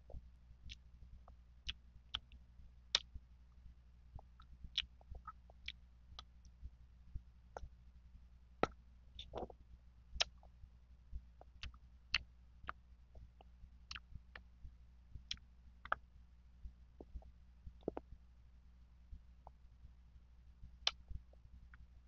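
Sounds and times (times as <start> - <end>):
faint low hum: 0.0 - 22.0
wet mouth chewing clicks: 4.2 - 6.3, 8.6 - 9.6, 10.2 - 10.5, 11.4 - 12.8.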